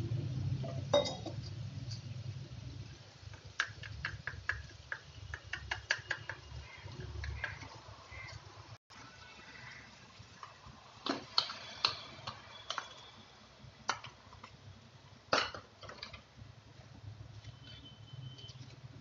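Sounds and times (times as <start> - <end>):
spoon clinking against saucepan: 0.9 - 1.4.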